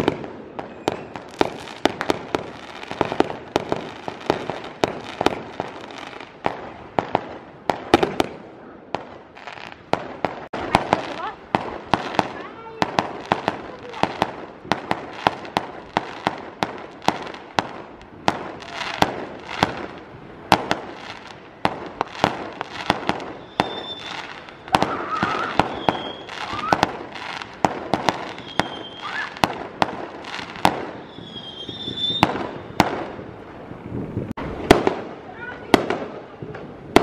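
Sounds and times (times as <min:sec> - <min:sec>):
fireworks whistling: 0:00.0 - 0:08.4, 0:09.0 - 0:33.3
fireworks cracks and bangs: 0:00.0 - 0:37.0.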